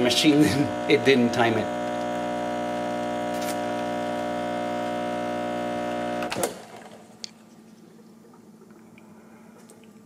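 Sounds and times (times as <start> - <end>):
espresso machine pump humming: 0.0 - 7.2.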